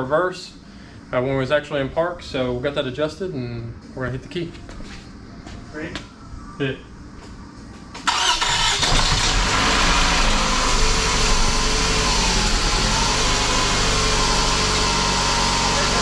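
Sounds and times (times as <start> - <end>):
car engine starting and running: 8.0 - 16.0.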